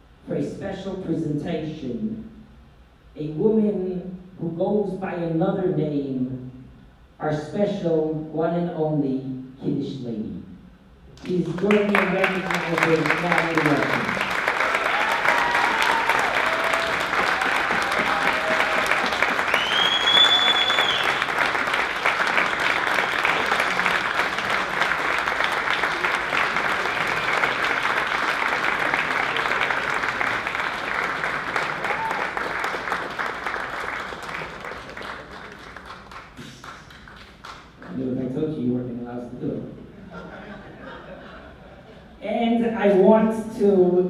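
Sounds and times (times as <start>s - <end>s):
audience applauding: 11.1s - 37.9s
short whistle: 19.5s - 21.2s.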